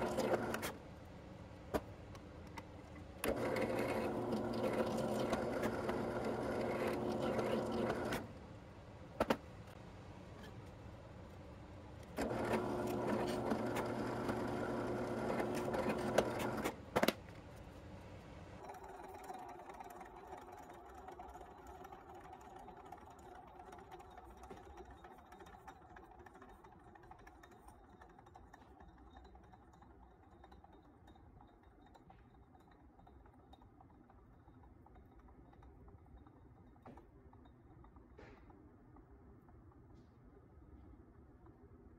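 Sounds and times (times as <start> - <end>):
drill press motor running: 0.0 - 0.7, 3.2 - 8.3, 12.2 - 16.8.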